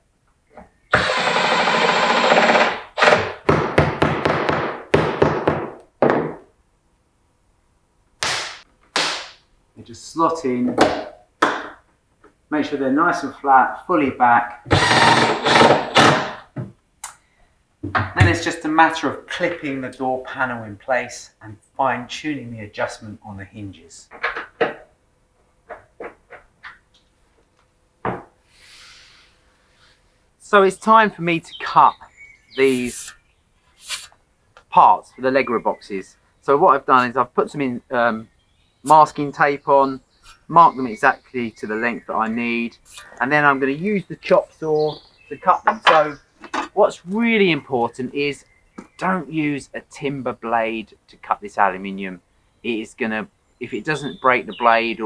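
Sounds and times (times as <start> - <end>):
impact driver driving screws: 0.9 - 3.4, 14.7 - 16.4
faint hiss: 28.4 - 43.6.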